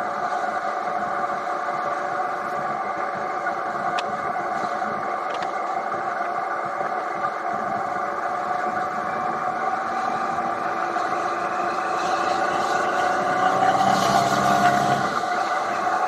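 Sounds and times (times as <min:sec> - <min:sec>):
motorcycle engine running: 0:00.0 - 0:16.0
wind and road noise: 0:00.0 - 0:16.0.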